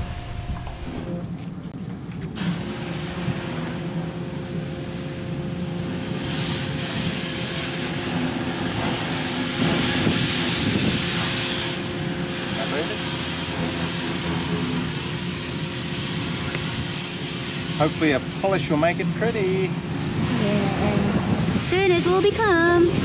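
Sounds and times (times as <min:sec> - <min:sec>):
engine droning: 0:00.0 - 0:23.0
steady hum: 0:00.0 - 0:23.0
hiss: 0:05.9 - 0:19.7.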